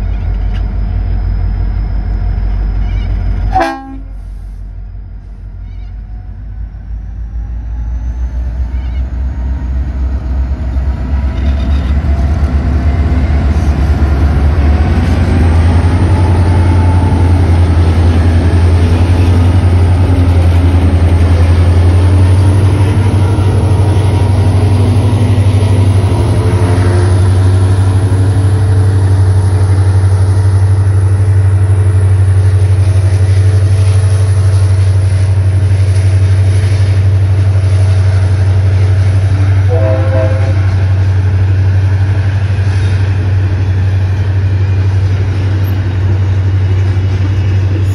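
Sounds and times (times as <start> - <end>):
diesel locomotive engines: 0.0 - 47.9
train wagons rolling: 10.8 - 47.9.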